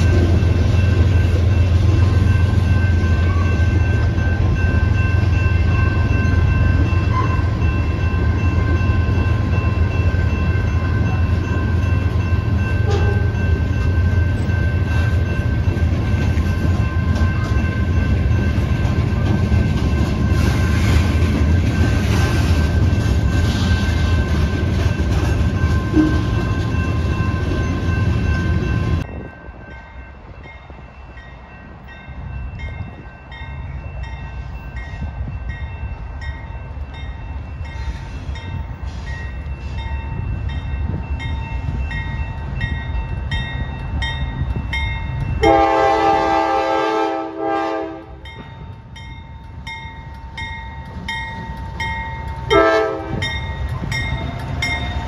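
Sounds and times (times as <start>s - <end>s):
diesel freight train rumble: 0.0s - 55.0s
locomotive horn blast: 12.8s - 13.4s, 45.4s - 48.2s, 52.5s - 53.3s.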